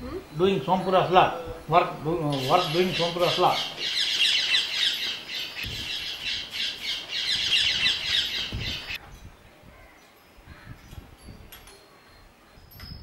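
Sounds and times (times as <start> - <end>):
flock of birds chattering: 0.4 - 9.0.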